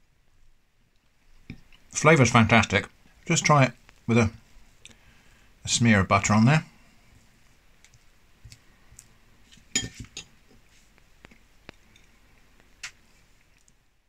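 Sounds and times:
knife clinking on ceramic plate: 0:09.7 - 0:10.3.

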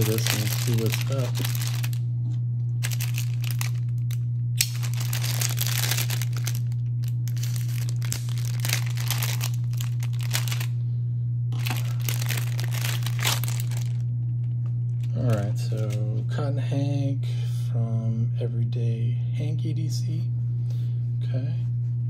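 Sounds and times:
plastic bag crinkling: 0:00.0 - 0:02.0, 0:02.8 - 0:10.7, 0:11.6 - 0:14.0
steady low hum: 0:00.0 - 0:22.0.

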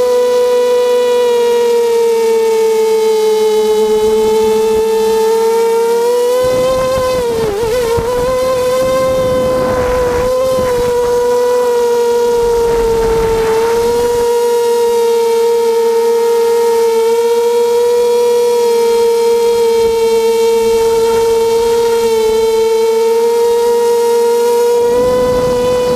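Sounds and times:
drone propellers whining: 0:03.2 - 0:15.0, 0:17.8 - 0:25.9
rushing wind noise: 0:06.3 - 0:14.6, 0:19.5 - 0:22.9, 0:24.7 - 0:25.9.

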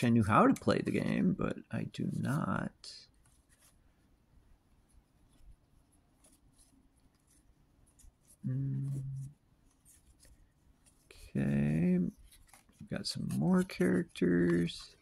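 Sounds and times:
game cards clicking and rubbing: 0:05.2 - 0:15.0
person humming hmm: 0:08.4 - 0:09.3.

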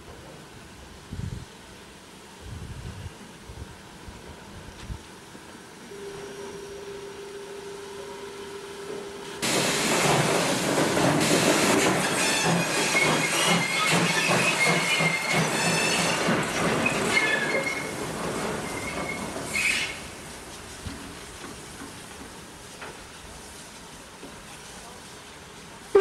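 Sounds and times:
rail clatter: 0:09.4 - 0:23.1
hissing steam: 0:09.4 - 0:26.0
squealing wheels: 0:11.6 - 0:20.1.

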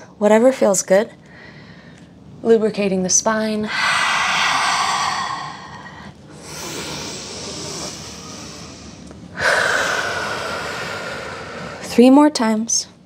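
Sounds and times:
woman breathing audibly: 0:03.7 - 0:12.0.

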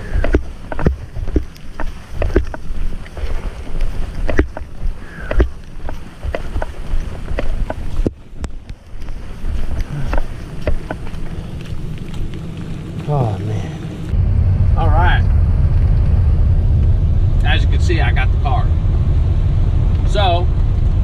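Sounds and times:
camera knocking and rubbing: 0:00.0 - 0:12.3
walking footsteps: 0:00.0 - 0:14.2
low handling rumble: 0:00.0 - 0:21.0.

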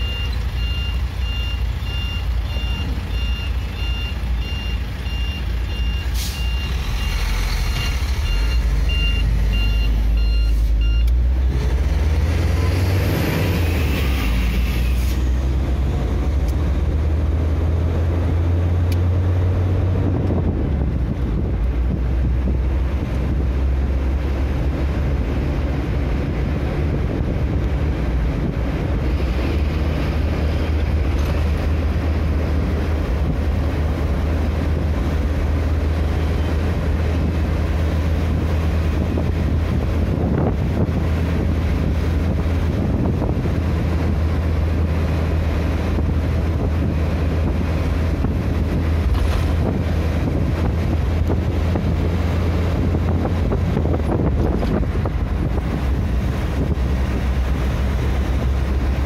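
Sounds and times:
repeating electronic beep: 0:00.0 - 0:11.1
tyre and road noise: 0:00.0 - 0:59.0
vehicle engine: 0:00.0 - 0:59.0.

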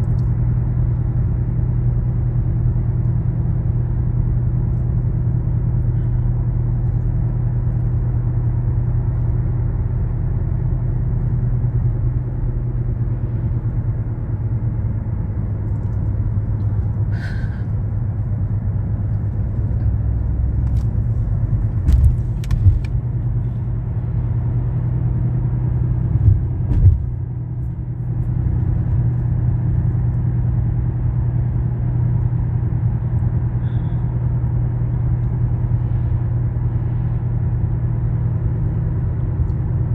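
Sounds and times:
car driving drone: 0:00.0 - 0:39.9
short thumps: 0:21.8 - 0:23.0, 0:26.1 - 0:27.2.

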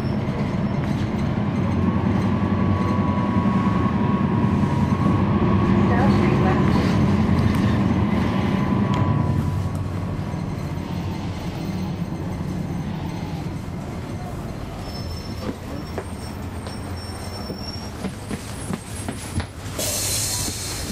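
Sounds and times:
bus diesel engine rumble: 0:00.0 - 0:20.9
thin high squeal: 0:14.1 - 0:17.9.

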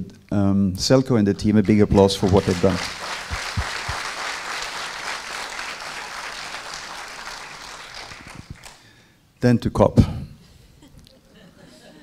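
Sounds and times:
audience applauding: 0:01.6 - 0:08.9.

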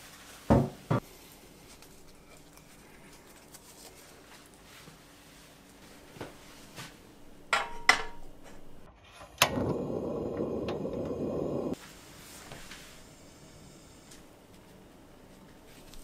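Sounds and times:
metal pan clanking: 0:07.5 - 0:08.3
gas flame hissing: 0:09.4 - 0:14.4.

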